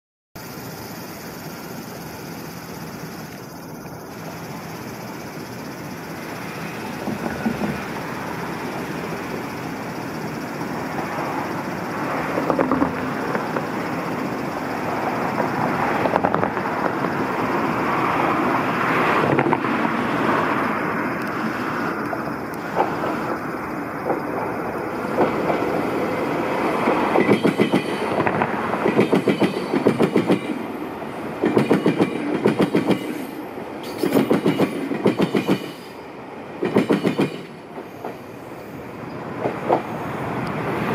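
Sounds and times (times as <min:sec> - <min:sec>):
electric train rumble: 0:00.4 - 0:40.9
train wheels clacking over crossing: 0:04.1 - 0:18.0, 0:21.3 - 0:38.4, 0:39.3 - 0:40.8.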